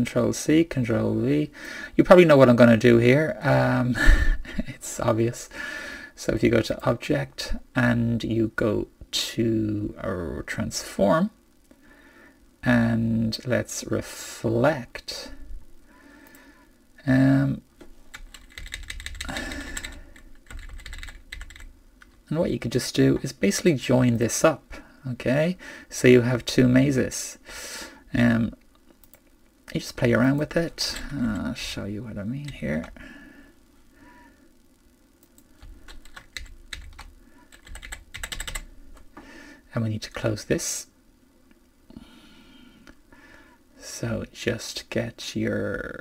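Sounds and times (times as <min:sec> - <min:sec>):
computer keyboard keys clicking: 0:18.1 - 0:22.2, 0:35.3 - 0:38.6.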